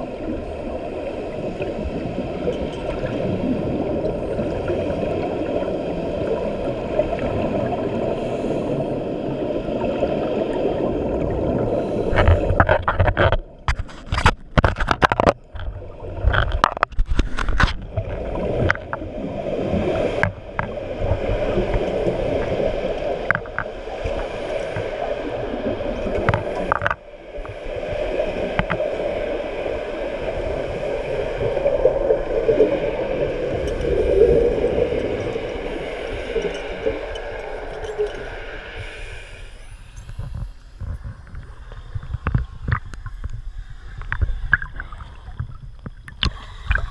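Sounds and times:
muffled underwater bubbles gurgling: 0.0s - 13.7s, 17.7s - 46.9s
sharp clicks and knocks: 12.2s - 17.9s.

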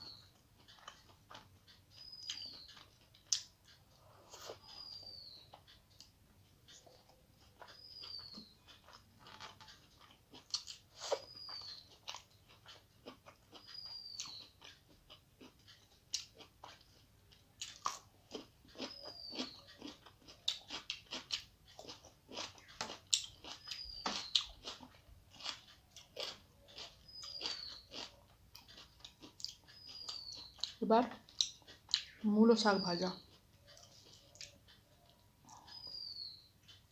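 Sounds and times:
chewing and crunching food: 0.0s - 36.9s
high falling chirp: 4.4s - 5.6s, 7.7s - 8.8s, 11.0s - 12.0s, 35.0s - 36.6s.

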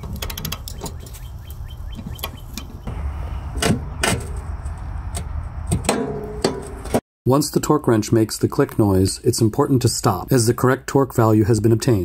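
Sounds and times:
low rumble: 2.8s - 6.4s.

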